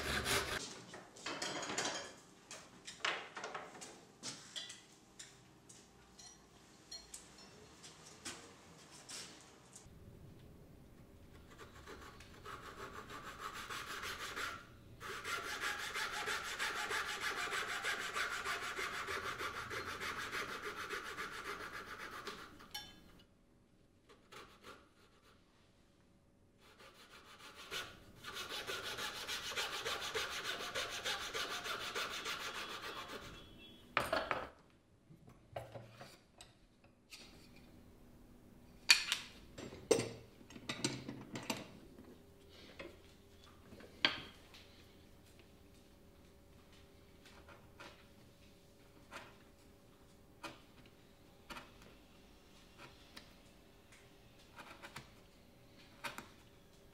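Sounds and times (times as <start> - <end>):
fret saw cutting wood: 0.0 - 0.6.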